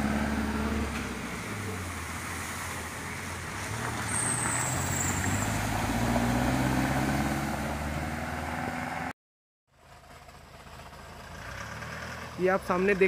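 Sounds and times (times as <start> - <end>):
tyres splashing through water: 0.0 - 8.2.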